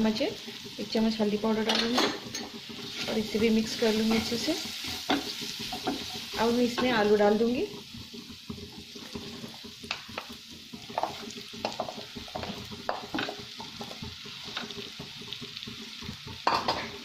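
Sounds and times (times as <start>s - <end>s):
potato sizzling in hot oil: 0.0s - 17.0s
wooden spatula scraping pan: 1.8s - 15.3s.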